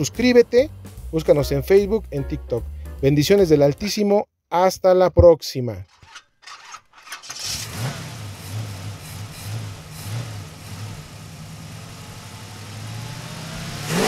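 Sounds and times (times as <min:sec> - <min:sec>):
pulsing engine rumble: 0:07.3 - 0:14.0.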